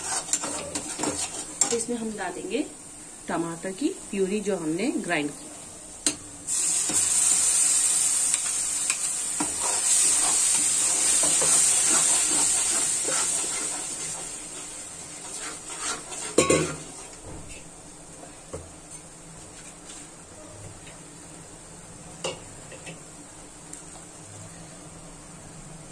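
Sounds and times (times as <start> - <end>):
spatula stirring in metal pan: 0.0 - 2.0, 8.9 - 17.7
puree sizzling in hot oil: 0.0 - 2.8, 6.0 - 17.7.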